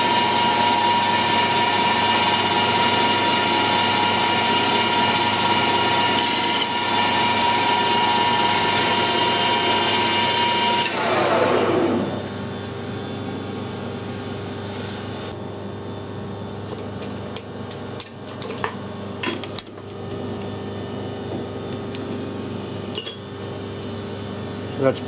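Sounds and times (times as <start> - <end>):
lathe machine hum: 0.0 - 15.4.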